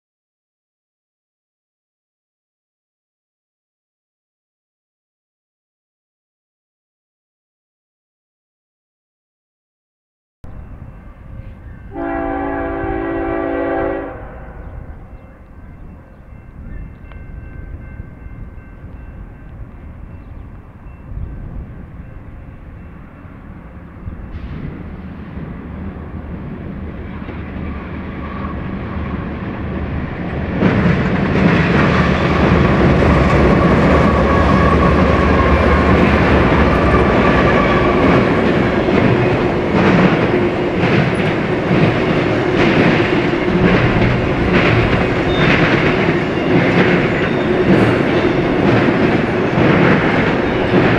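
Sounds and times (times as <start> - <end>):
diesel locomotive passing: 10.4 - 50.9
train wheels clattering on rails: 14.6 - 50.9.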